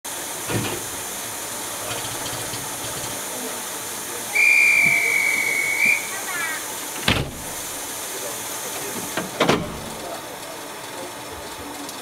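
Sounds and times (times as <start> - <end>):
steam locomotive hissing: 0.1 - 11.9
high steady train whistle: 4.3 - 6.7.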